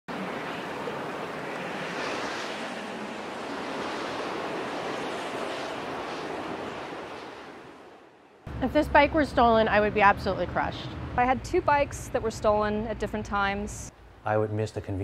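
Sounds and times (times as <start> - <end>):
steady rushing noise: 0.1 - 9.8.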